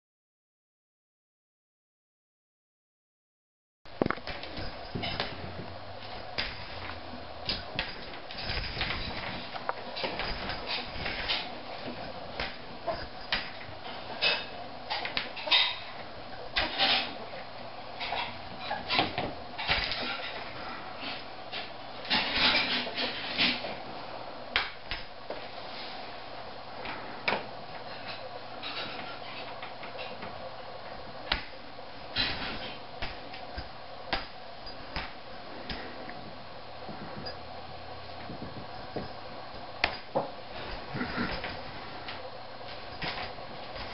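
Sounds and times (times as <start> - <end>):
claws scrabbling on tile floor: 4.0 - 15.8.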